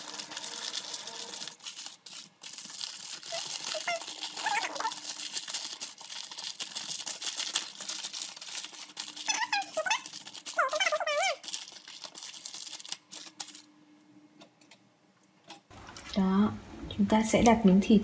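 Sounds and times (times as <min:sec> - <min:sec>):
aluminium foil crinkling: 0:00.0 - 0:13.7.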